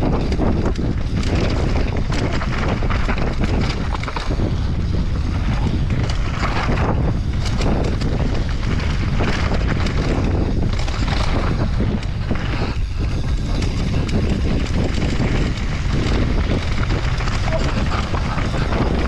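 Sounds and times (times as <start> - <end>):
bike knocking and rattling: 0.0 - 19.0
tyres rolling over dirt and stones: 0.0 - 19.0
wind buffeting microphone: 0.0 - 19.0.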